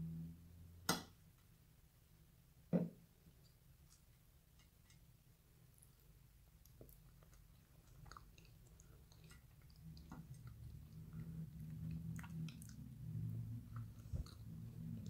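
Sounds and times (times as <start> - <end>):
person chewing: 5.7 - 15.0.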